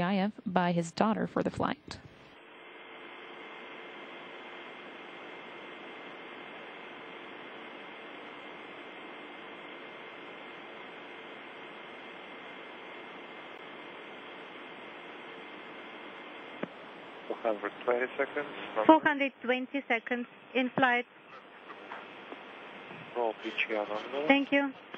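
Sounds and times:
faint hum tones: 0:00.0 - 0:24.9
radio static hiss: 0:00.0 - 0:24.9.

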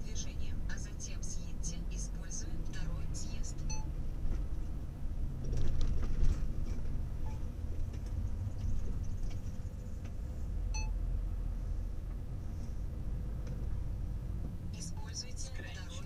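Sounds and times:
diesel engine low rumble: 0:00.0 - 0:16.0
short electronic beep: 0:03.7 - 0:03.9, 0:10.7 - 0:11.0.

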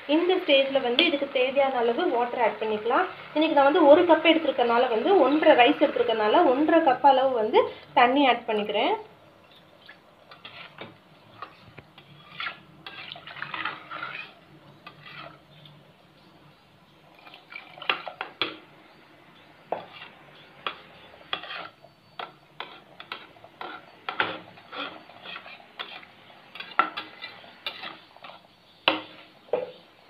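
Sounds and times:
metal spatula scraping a pot: 0:10.3 - 0:15.8, 0:17.0 - 0:18.5, 0:19.7 - 0:29.5.

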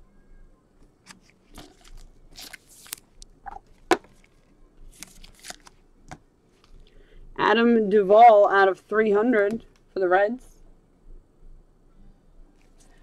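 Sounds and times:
cards and wrappers rustling: 0:00.9 - 0:05.8.

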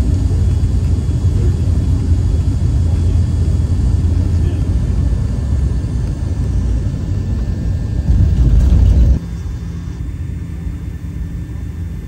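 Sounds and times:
vehicle rumble from inside cabin: 0:07.4 - 0:09.2.

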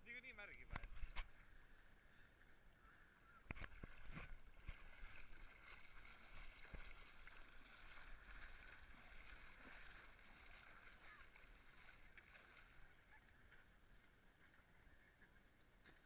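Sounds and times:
muffled water sloshing: 0:00.6 - 0:16.0
short knocks or splashes: 0:03.5 - 0:12.8.

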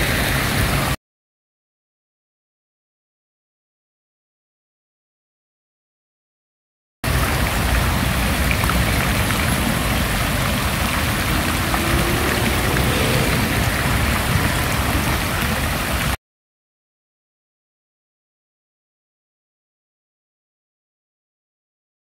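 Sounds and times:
city traffic rumble: 0:07.1 - 0:16.1
fountain splashing into basin: 0:07.1 - 0:16.2.

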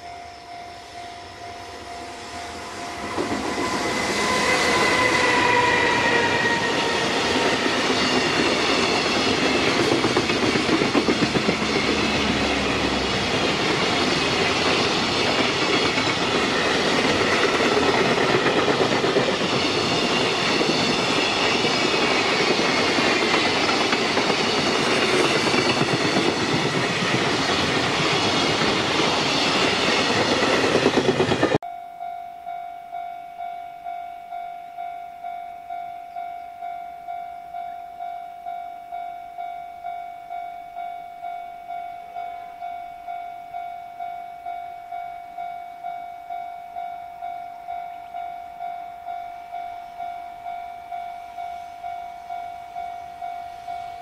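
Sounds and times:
freight train rumbling past: 0:00.0 - 0:31.6.

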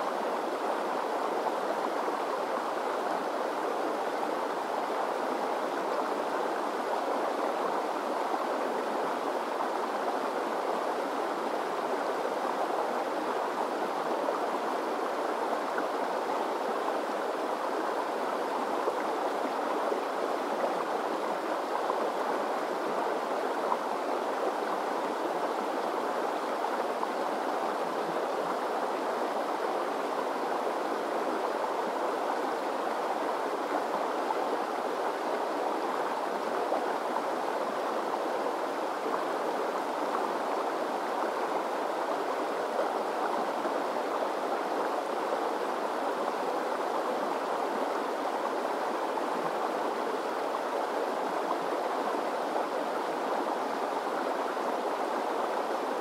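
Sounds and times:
river rushing over rocks: 0:00.0 - 0:56.0.

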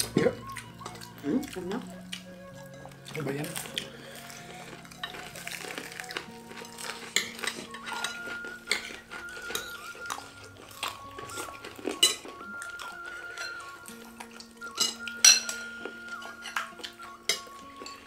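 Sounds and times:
background music: 0:00.0 - 0:18.0
cutlery clinking on plates: 0:06.5 - 0:18.0.

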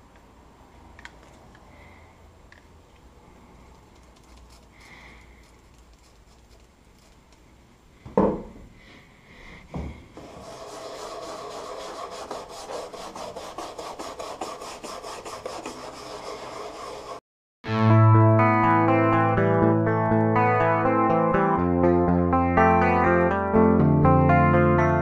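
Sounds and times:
brush scrubbing plastic: 0:03.9 - 0:07.4, 0:10.2 - 0:17.2.

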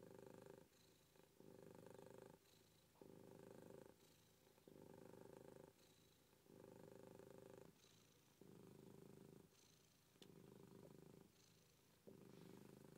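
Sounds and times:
cat purring: 0:00.0 - 0:12.9.

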